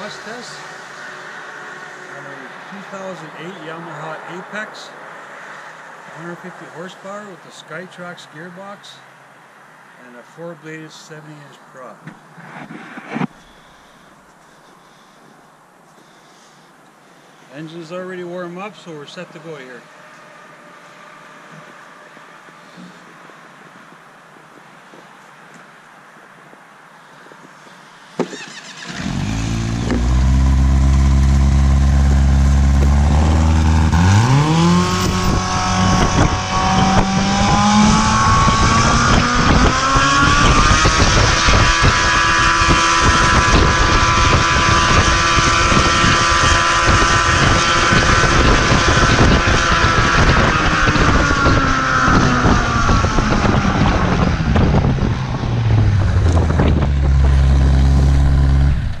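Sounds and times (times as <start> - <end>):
aircraft engine revving: 28.4 - 59.0.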